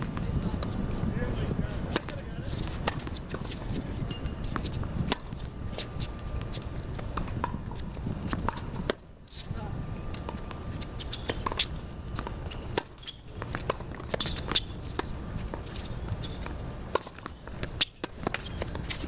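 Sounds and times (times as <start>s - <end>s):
racket striking ball: 1.8s - 9.0s, 10.2s - 15.7s.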